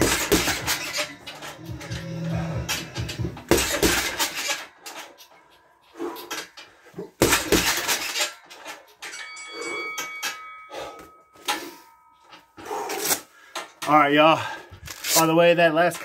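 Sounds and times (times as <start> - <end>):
metallic clinking: 0.0 - 13.9
thin ringing tone: 8.2 - 12.8.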